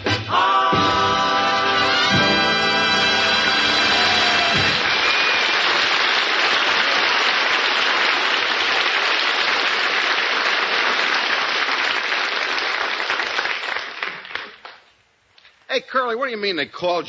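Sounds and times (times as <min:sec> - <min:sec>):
audience applauding: 0:03.1 - 0:14.8.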